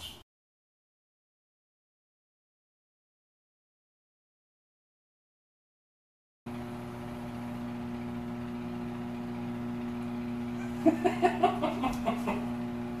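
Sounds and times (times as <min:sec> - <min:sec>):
steady electrical hum: 0:06.5 - 0:13.0
man laughing: 0:10.6 - 0:12.6.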